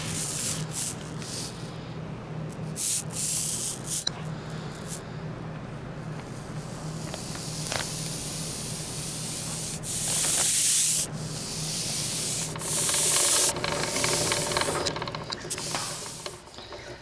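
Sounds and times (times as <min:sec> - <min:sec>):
loud bursts of high hiss: 0:00.0 - 0:01.7, 0:02.8 - 0:04.1, 0:06.9 - 0:14.8
rubbing hissing noise: 0:00.0 - 0:01.7, 0:06.3 - 0:14.8.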